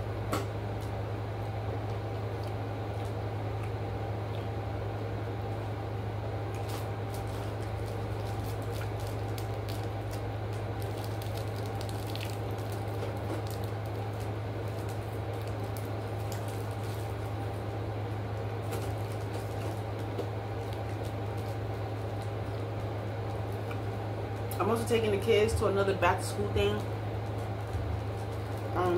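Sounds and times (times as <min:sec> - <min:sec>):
steady low hum: 0:00.0 - 0:28.9
plastic wrapper crinkling: 0:06.6 - 0:24.6, 0:26.7 - 0:28.9.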